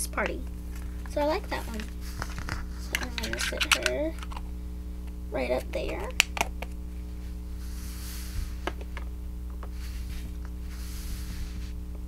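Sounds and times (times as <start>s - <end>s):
low electrical hum: 0.0s - 12.0s
soft rustling: 9.7s - 11.8s.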